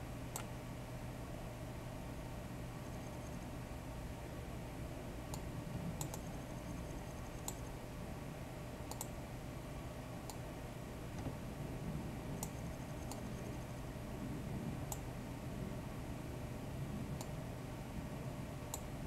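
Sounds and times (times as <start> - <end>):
steady low hum: 0.0 - 19.0
computer mouse clicking: 0.3 - 0.5, 5.3 - 7.7, 8.9 - 9.2, 12.4 - 13.6, 14.9 - 15.1, 18.7 - 18.9.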